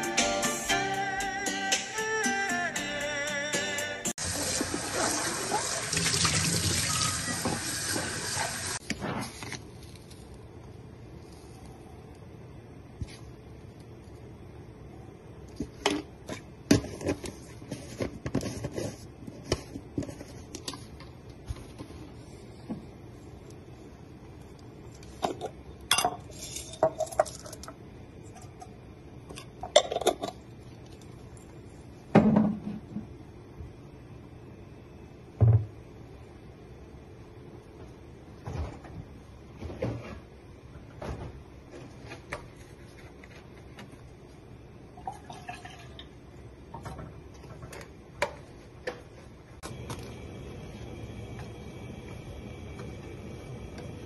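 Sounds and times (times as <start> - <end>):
utensils and dishes clattering: 25.2 - 27.7, 29.3 - 30.4
kitchen knocks and thuds: 32.1 - 33.0, 35.4 - 35.7.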